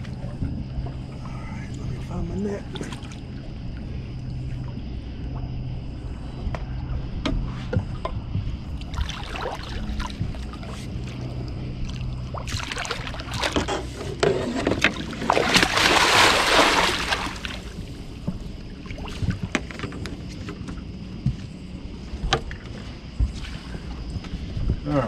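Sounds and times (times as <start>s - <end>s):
fish thrashing and splashing: 8.8s - 11.2s, 11.8s - 14.0s, 14.7s - 18.2s.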